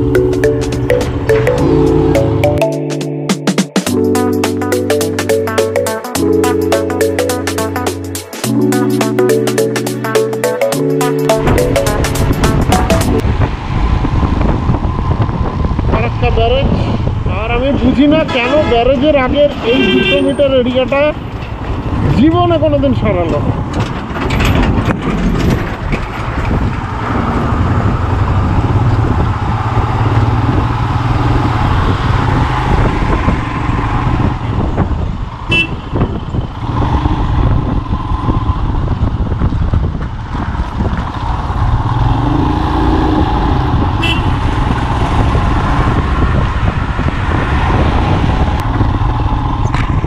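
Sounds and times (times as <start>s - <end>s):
road and wind noise: 0.0s - 3.3s, 3.9s - 50.0s
motorcycle engine drone: 11.4s - 18.1s, 26.4s - 50.0s
short high horn toots: 44.0s - 44.4s.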